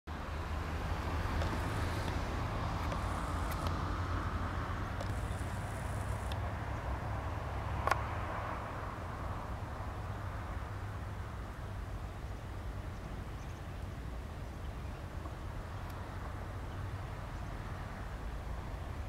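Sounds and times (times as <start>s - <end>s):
low outdoor background rumble: 0.1s - 19.0s
faint clicks: 2.8s - 3.8s.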